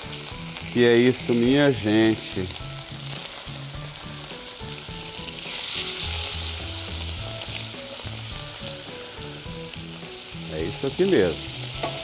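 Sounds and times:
meat sizzling in hot fat: 0.0 - 12.0.

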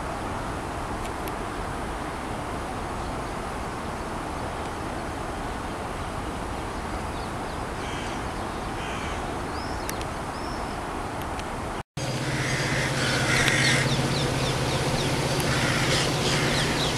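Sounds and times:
crows calling: 7.8 - 9.8, 12.0 - 16.9
low background rush: 9.3 - 16.9.

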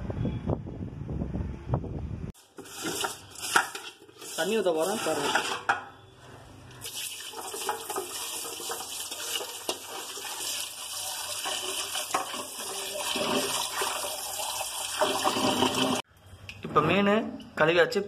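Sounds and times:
tap water pouring into metal bowl: 2.4 - 4.5, 6.8 - 16.0
hands rinsing fish in water: 2.4 - 5.3.

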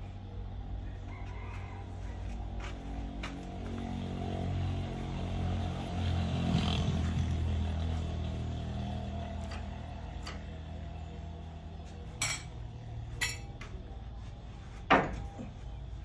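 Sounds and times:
low machine hum: 7.4 - 16.0.

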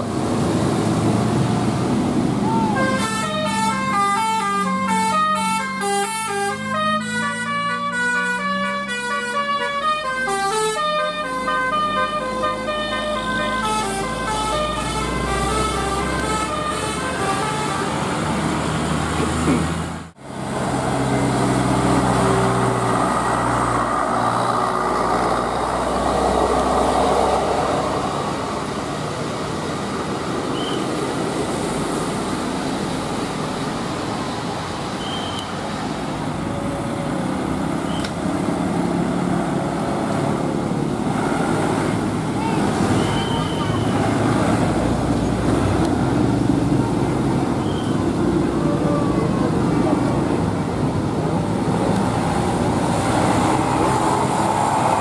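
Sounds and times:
bus engines: 0.0 - 55.0
road noise: 0.0 - 55.0
bus musical horn: 2.5 - 18.2.

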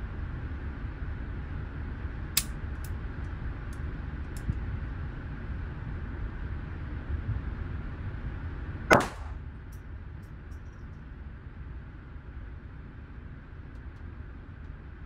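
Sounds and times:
ventilation hum: 0.0 - 15.0
gunshot crack: 8.9 - 9.4.

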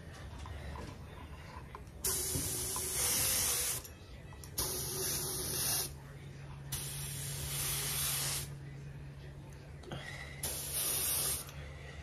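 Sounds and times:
paint spray gun hissing: 10.5 - 11.5.

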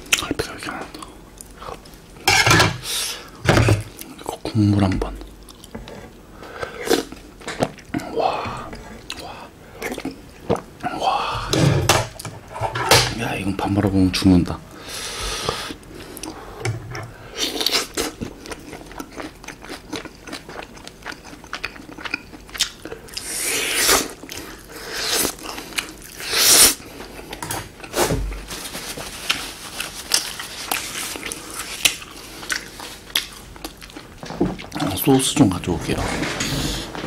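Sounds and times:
chewing food: 4.0 - 10.7, 16.2 - 23.3, 29.2 - 34.9.

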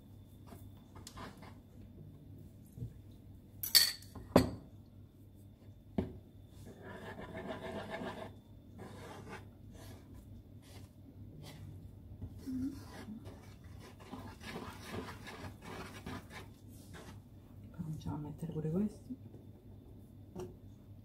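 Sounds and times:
fork stirring and scraping: 12.7 - 17.3.

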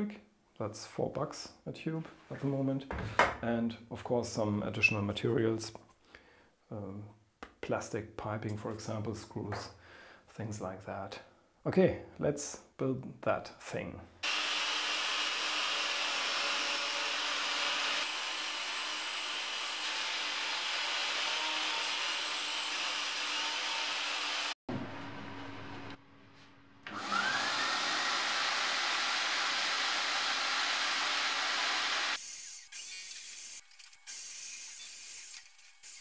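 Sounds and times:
shop vacuum running: 20.0 - 32.2.

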